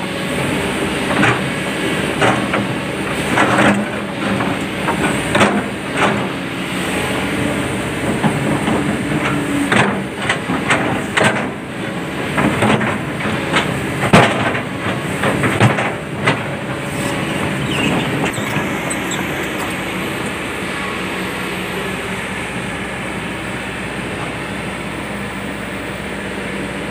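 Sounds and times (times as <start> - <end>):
excavator diesel engine running: 0.0 - 26.9
steel bucket scraping rocks: 15.0 - 20.4.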